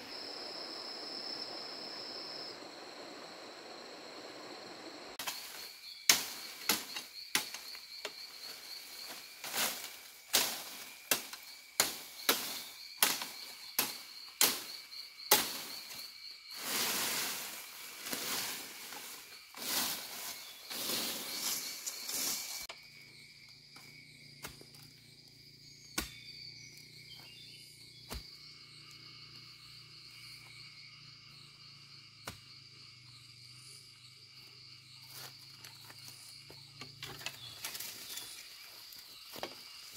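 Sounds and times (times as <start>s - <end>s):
insects chirring: 0.0s - 39.9s
bamboo leaves rustling: 5.2s - 22.7s, 37.1s - 39.9s
bamboo poles knocking and cracking: 6.1s - 8.2s, 9.4s - 14.7s.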